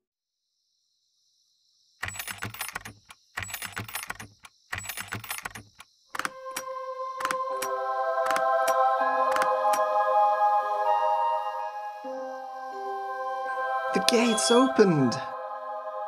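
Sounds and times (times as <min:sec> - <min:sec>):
rapid clicking and rattling: 0:02.0 - 0:06.3
music: 0:06.2 - 0:16.0.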